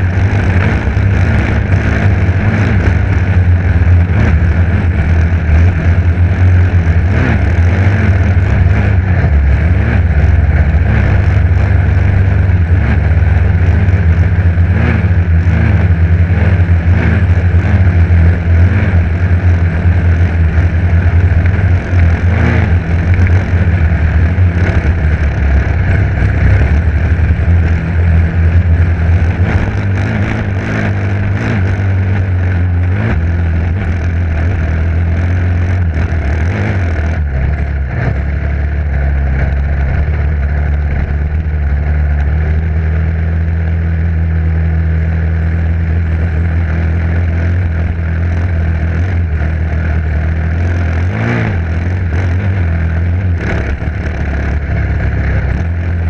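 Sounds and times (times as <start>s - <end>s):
dirt bike engine running loud: 0.0s - 56.0s.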